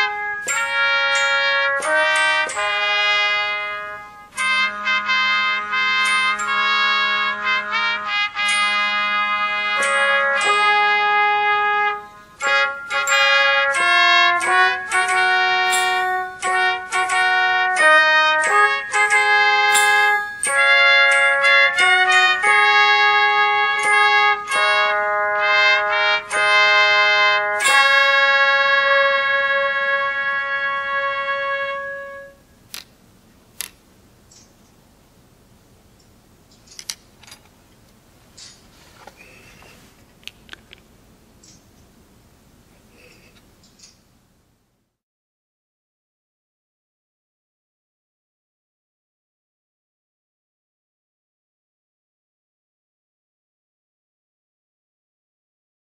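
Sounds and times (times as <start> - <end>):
brass music with trumpet lead: 0.0 - 32.6
miniature horn long note: 0.0 - 32.6
small tools clicking on workbench: 36.6 - 37.6.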